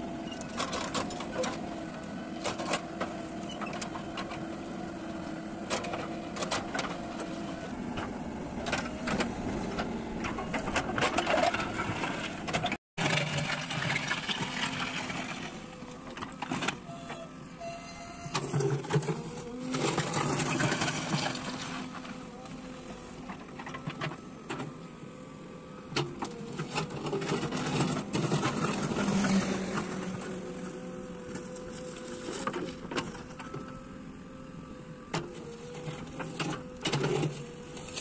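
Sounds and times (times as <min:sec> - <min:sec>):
diesel engine under load: 0:00.0 - 0:38.0
bucket scraping rocky soil: 0:10.4 - 0:16.6, 0:18.2 - 0:23.8, 0:26.3 - 0:33.3.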